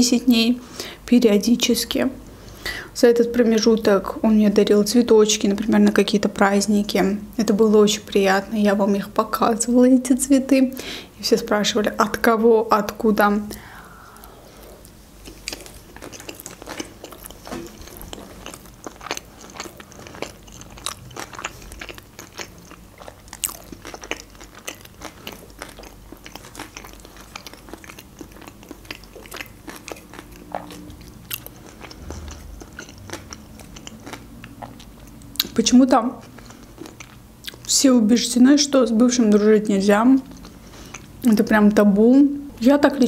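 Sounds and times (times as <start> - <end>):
woman chewing food: 13.6 - 37.7, 40.2 - 41.3.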